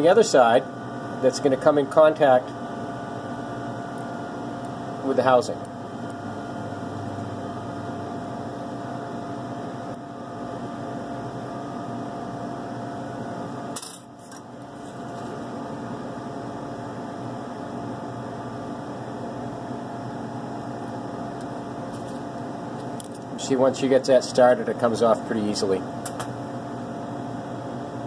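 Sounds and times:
electrical hum: 0:00.0 - 0:28.0
sharp click: 0:26.0 - 0:26.3.

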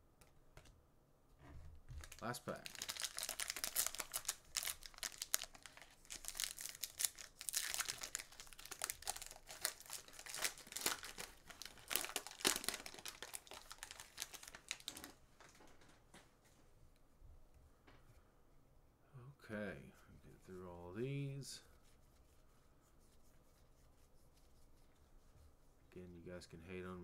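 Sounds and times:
cards rustling: 0:02.0 - 0:15.2
wrapper tearing and crinkling: 0:02.0 - 0:15.2.

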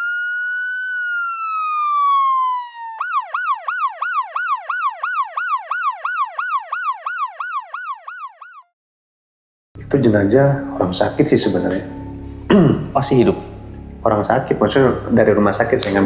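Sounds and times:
electronic siren wail and yelp: 0:00.0 - 0:08.8.

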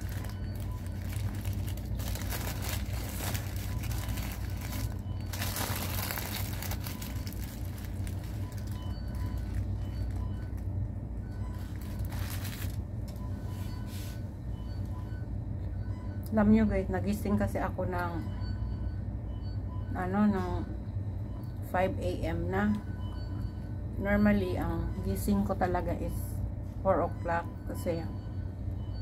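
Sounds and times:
paper wrapper crinkling: 0:00.0 - 0:10.7, 0:11.5 - 0:13.2
steady low hum: 0:00.0 - 0:29.0.

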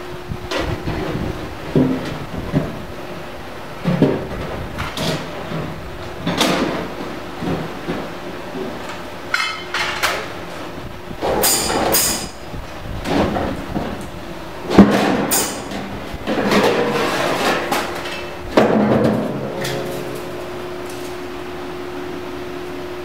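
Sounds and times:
steady machine hum: 0:00.0 - 0:23.0
metallic clanks and knocks: 0:09.3 - 0:10.3, 0:14.7 - 0:20.4.

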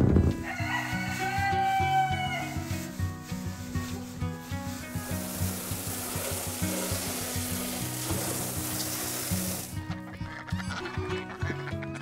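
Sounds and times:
background music with beat: 0:00.0 - 0:12.0
rushing rubbing noise: 0:02.5 - 0:09.7.

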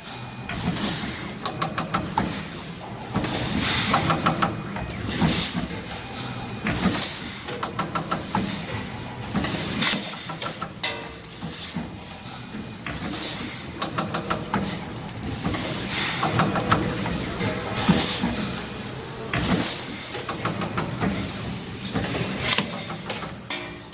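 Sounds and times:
mechanism clicks and clacks: 0:00.0 - 0:23.9
steady machine hum: 0:00.0 - 0:23.9.

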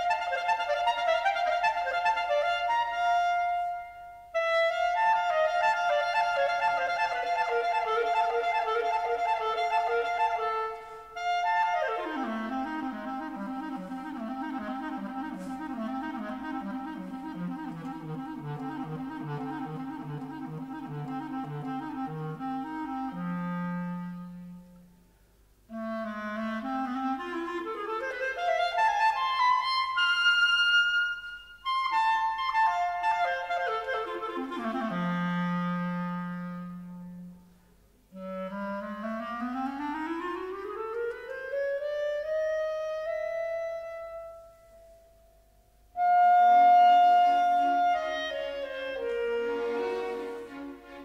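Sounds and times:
solo clarinet: 0:00.0 - 0:51.0
orchestra playing chords: 0:47.6 - 0:51.0.

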